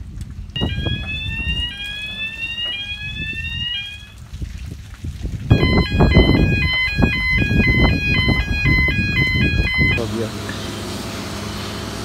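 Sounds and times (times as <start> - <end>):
rising whoop alarm: 0.6 - 4.2, 5.5 - 10.0
two-tone electronic alarm: 0.6 - 4.2, 5.5 - 10.0.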